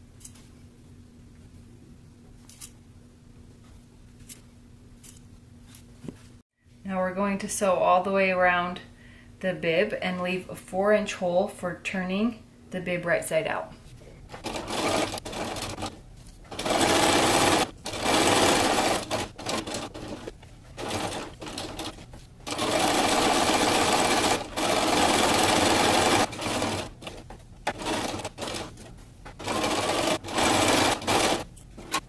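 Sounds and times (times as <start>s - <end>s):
sewing machine stitching: 14.4s - 32.0s.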